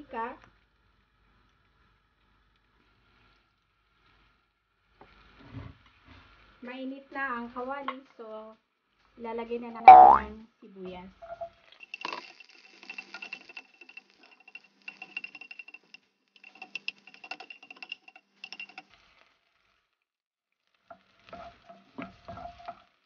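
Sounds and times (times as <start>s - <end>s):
oil sizzling: 11.6s - 19.7s, 20.8s - 23.0s
spatula scraping frying pan: 21.0s - 23.0s.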